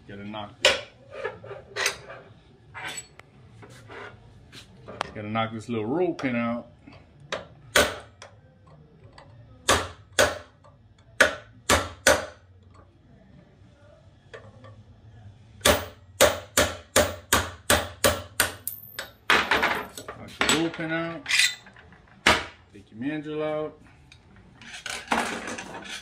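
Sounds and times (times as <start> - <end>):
hammer striking metal punch: 7.4 - 8.1, 9.6 - 10.5, 11.2 - 12.4, 15.6 - 19.1.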